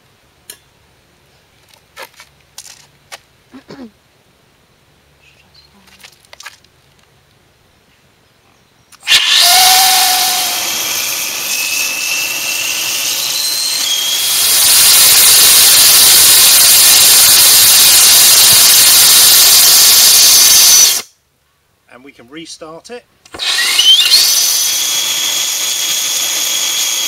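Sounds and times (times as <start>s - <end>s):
rocket motor rushing hiss: 9.0s - 21.1s, 23.3s - 27.0s.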